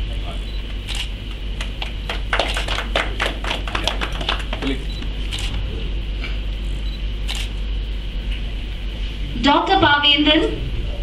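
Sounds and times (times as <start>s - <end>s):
steady low hum: 0.0s - 11.0s
scattered hand clapping: 1.6s - 5.1s.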